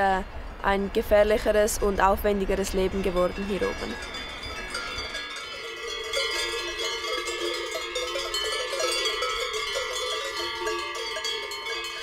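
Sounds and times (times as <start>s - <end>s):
cowbells clanking: 3.2s - 12.0s.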